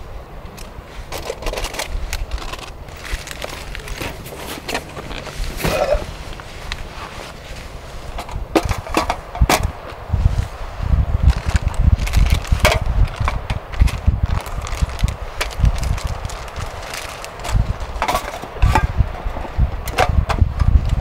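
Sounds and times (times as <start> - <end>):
wind gusts on microphone: 0.0 - 21.0
plastic containers clicking and rustling: 1.1 - 6.0, 11.3 - 18.9.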